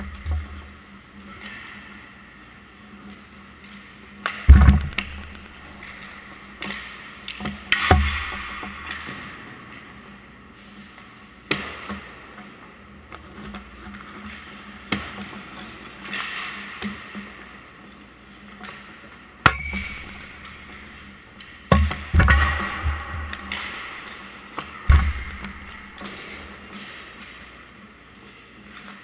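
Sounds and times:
pucks cracking off sticks: 3.6s - 9.4s, 18.6s - 29.0s
skates scraping on ice: 22.2s - 29.0s.

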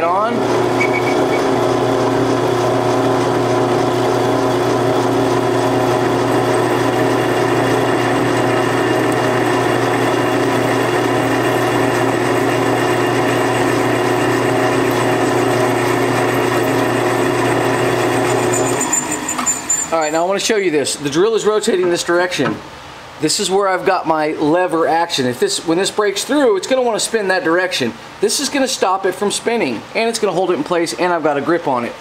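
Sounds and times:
drill press drilling steel: 0.4s - 20.3s.

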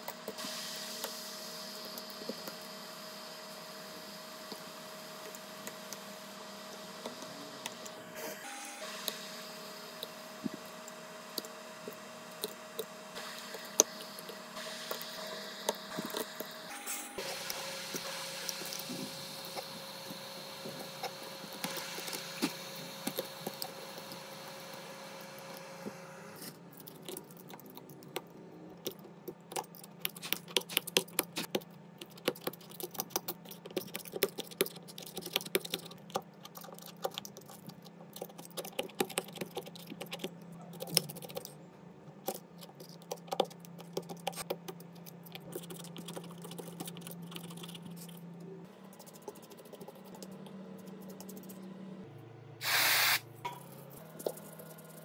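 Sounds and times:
high machine tone: 6.8s - 10.9s.

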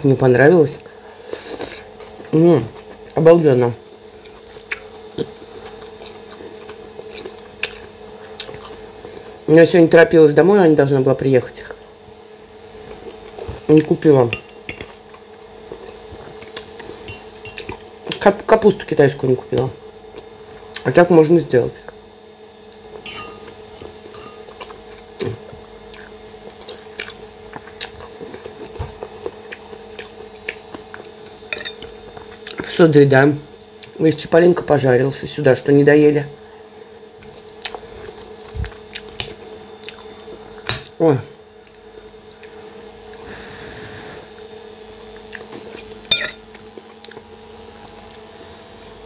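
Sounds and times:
steady low hum: 0.0s - 49.0s
person chewing: 3.9s - 9.4s, 15.0s - 18.2s, 22.9s - 32.6s, 37.3s - 40.4s, 45.2s - 45.9s, 46.5s - 47.3s
cutlery clinking on glass bowl: 23.1s - 23.4s, 24.2s - 24.4s.

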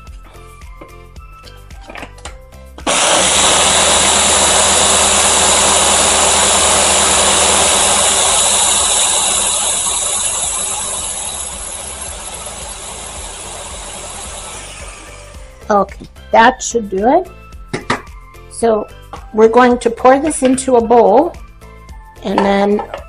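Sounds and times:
blender running: 2.8s - 15.7s.

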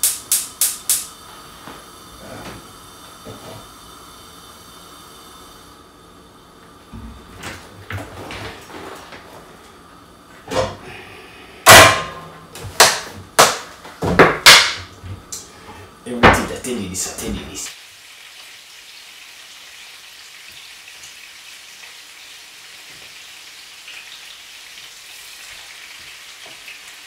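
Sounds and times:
pan hissing on hob: 0.6s - 5.9s
loud sharp knocks: 11.7s - 14.9s.

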